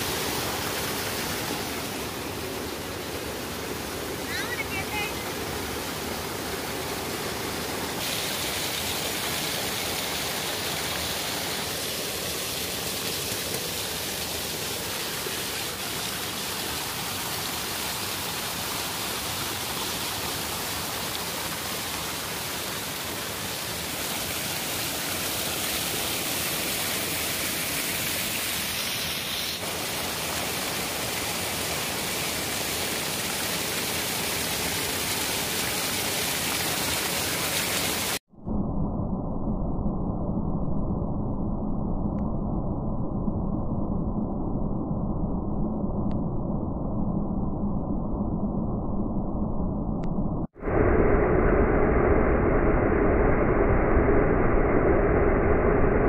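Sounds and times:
rushing flowing water: 0:00.0 - 0:38.3.

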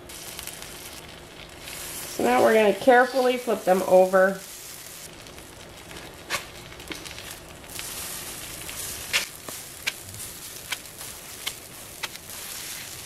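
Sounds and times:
pancakes sizzling on a griddle: 0:00.0 - 0:13.0
spatula tapping: 0:10.6 - 0:12.2.

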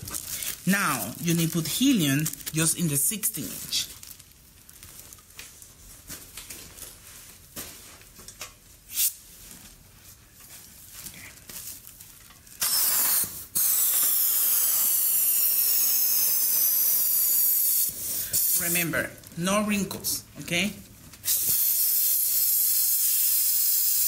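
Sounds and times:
plastic rustling: 0:00.0 - 0:12.6
helium hissing from valve: 0:12.6 - 0:18.6, 0:21.3 - 0:24.0.

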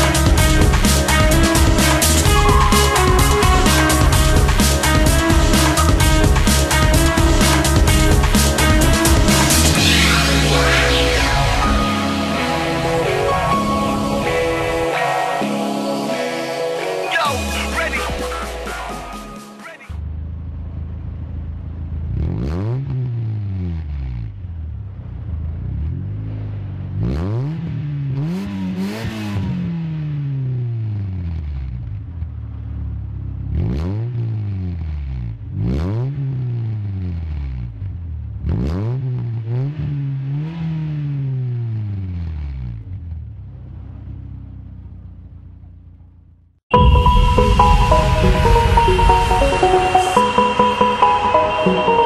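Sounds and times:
car engine idling: 0:20.0 - 0:22.3, 0:24.3 - 0:27.0, 0:42.8 - 0:52.0
car engine revving at exhaust: 0:20.0 - 0:46.1.

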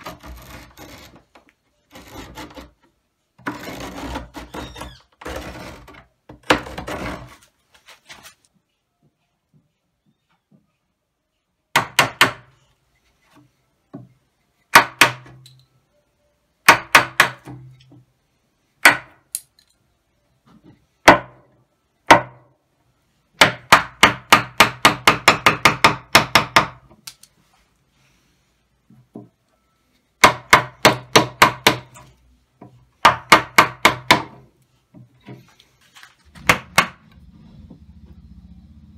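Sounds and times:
chisel struck into wood: 0:11.7 - 0:12.5, 0:14.7 - 0:15.4, 0:16.6 - 0:17.6, 0:18.8 - 0:19.2, 0:21.1 - 0:21.4, 0:23.4 - 0:26.9, 0:30.2 - 0:32.0, 0:33.0 - 0:34.4, 0:36.4 - 0:37.0.

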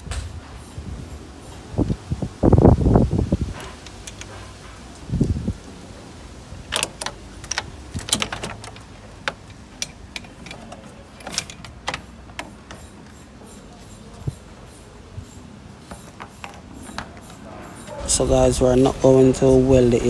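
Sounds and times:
sharp metal clicks and clinks: 0:03.7 - 0:04.4, 0:06.7 - 0:17.9.

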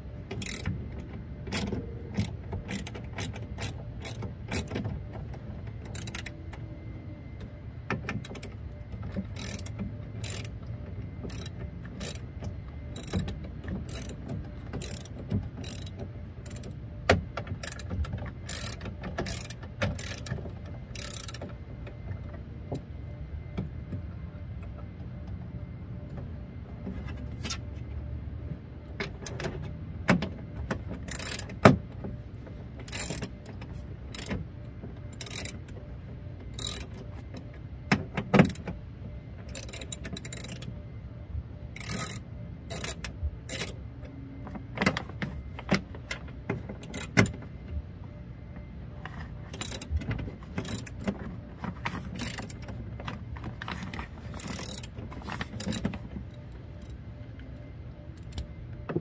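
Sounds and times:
tools clicking and rattling on metal: 0:00.3 - 0:06.4, 0:08.0 - 0:10.6, 0:11.2 - 0:16.8, 0:17.4 - 0:21.6, 0:29.0 - 0:31.7, 0:32.8 - 0:34.4, 0:35.1 - 0:35.8, 0:36.5 - 0:37.4, 0:39.5 - 0:40.7, 0:41.8 - 0:43.8, 0:44.8 - 0:47.4, 0:49.5 - 0:57.0.

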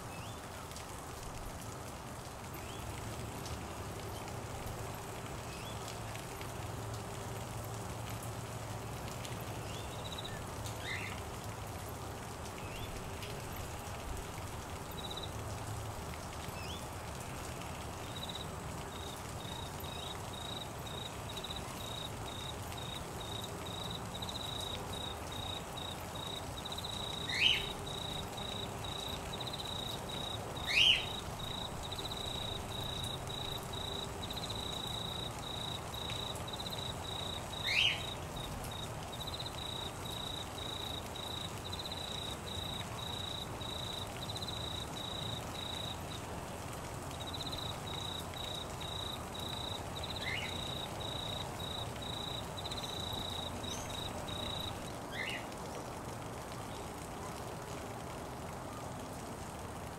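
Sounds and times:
rain hiss: 0:00.0 - 0:59.9
insect trilling: 0:19.0 - 0:46.0, 0:47.2 - 0:54.8
sharp bird calls: 0:27.2 - 0:29.1, 0:30.6 - 0:31.6, 0:37.5 - 0:38.2.

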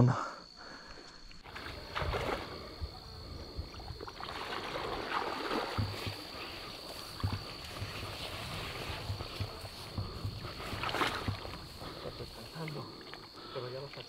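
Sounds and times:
insects chirring: 0:00.0 - 0:14.0
soft low thumps: 0:05.8 - 0:12.4.

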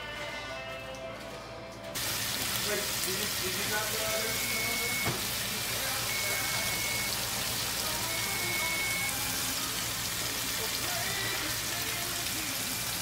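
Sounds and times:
background music: 0:00.0 - 0:02.0, 0:07.5 - 0:13.0
steaks sizzling in a frying pan: 0:02.0 - 0:13.0.

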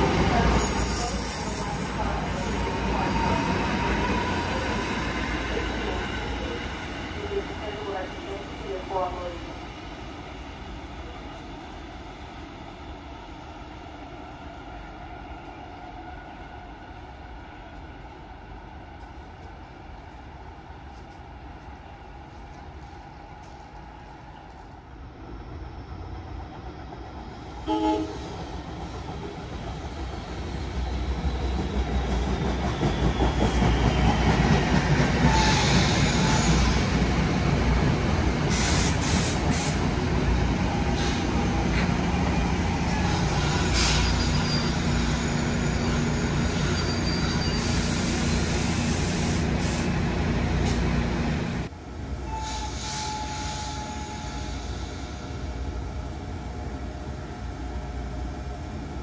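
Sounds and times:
electric train rumbling on tracks: 0:00.0 - 0:59.0
train wheels squealing: 0:00.6 - 0:06.9, 0:30.5 - 0:36.9, 0:42.9 - 0:49.0, 0:52.3 - 0:55.4.

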